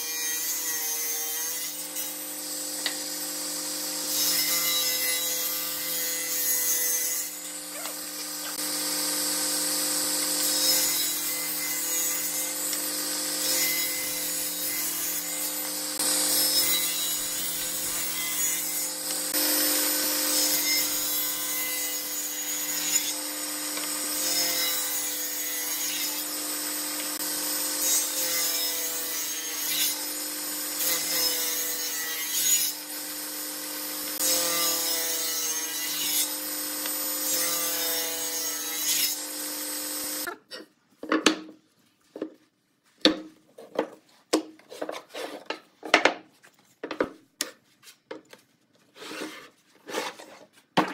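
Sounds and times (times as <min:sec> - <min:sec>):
table saw cutting wood: 0:00.0 - 0:40.3.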